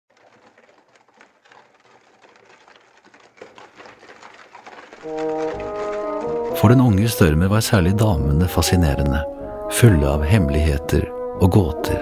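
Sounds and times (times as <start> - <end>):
rapid mechanical clicking: 0.1 - 6.9
music with held notes: 5.0 - 12.0.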